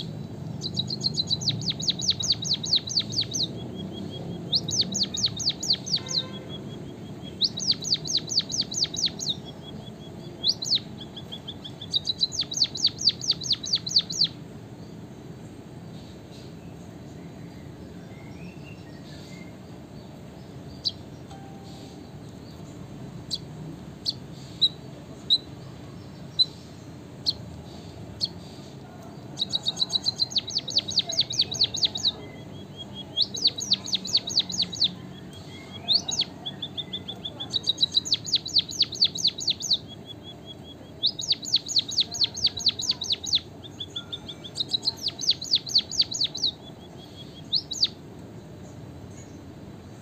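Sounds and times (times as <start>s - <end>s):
bird song of ticking and whistles: 0.0s - 14.4s, 16.3s - 19.7s, 29.4s - 48.0s
bird high call notes: 0.6s - 9.5s, 21.3s - 22.3s, 29.4s - 48.0s.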